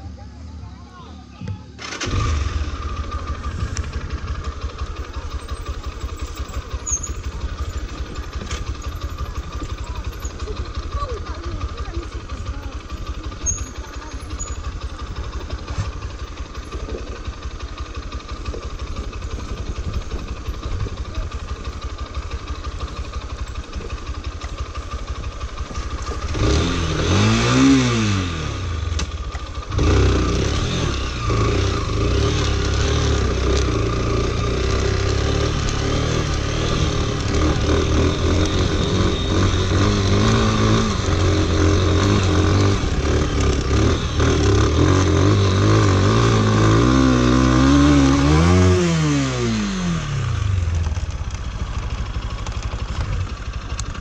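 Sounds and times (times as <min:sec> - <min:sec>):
motorcycle engine revving: 0:01.4 - 0:54.0.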